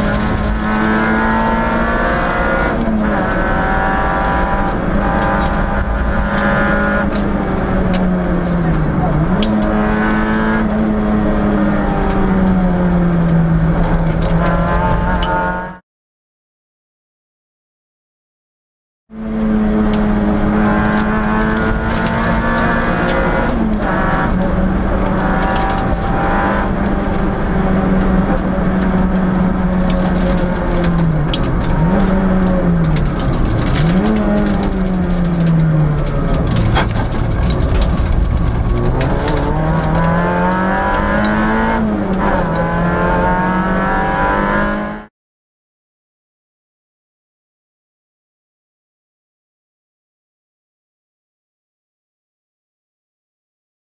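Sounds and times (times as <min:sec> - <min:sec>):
car engine at high revs: 0:00.0 - 0:15.8, 0:19.2 - 0:45.1
sharp clicks and knocks: 0:20.7 - 0:42.9.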